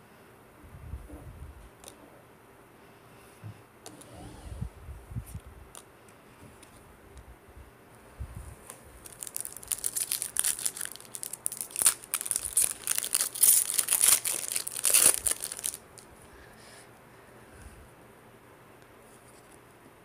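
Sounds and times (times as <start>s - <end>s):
foil wrapper crinkling: 8.7s - 16.1s.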